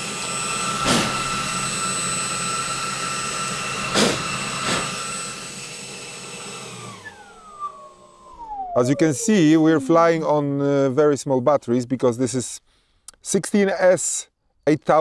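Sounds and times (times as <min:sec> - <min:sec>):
electric ducted fan whine: 0:00.0 - 0:10.9.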